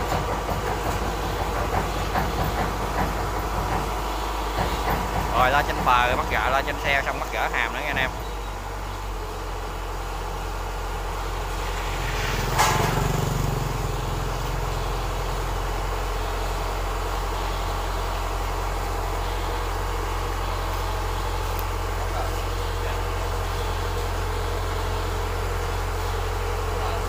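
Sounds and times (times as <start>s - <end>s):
diesel engine running: 0.0s - 27.0s
sharp metal clunk: 12.5s - 13.1s.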